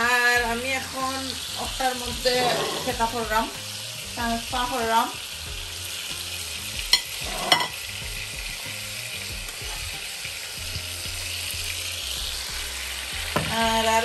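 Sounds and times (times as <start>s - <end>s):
burger patties sizzling in oil: 0.0s - 14.0s
knife and pan clinking on plates: 2.4s - 2.9s, 6.9s - 7.8s.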